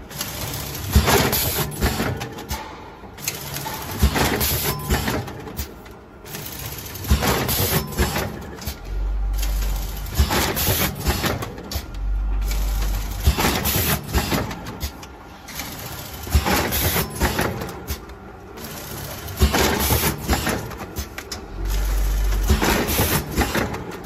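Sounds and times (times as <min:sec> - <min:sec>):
packing machine clicks and knocks: 0:00.0 - 0:24.0
low machine hum: 0:08.4 - 0:16.4, 0:21.2 - 0:24.0.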